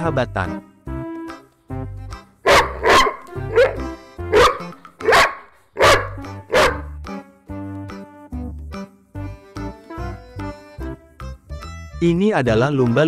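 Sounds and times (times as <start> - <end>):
light background music: 0.0 - 13.0
large dog barking: 2.4 - 7.0.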